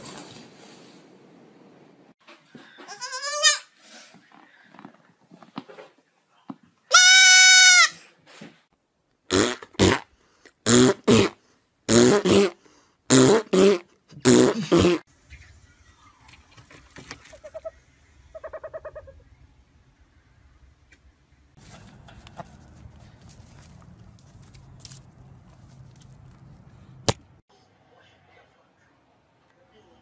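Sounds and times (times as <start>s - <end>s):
goat kid bleating: 2.9s - 3.7s, 6.9s - 7.9s.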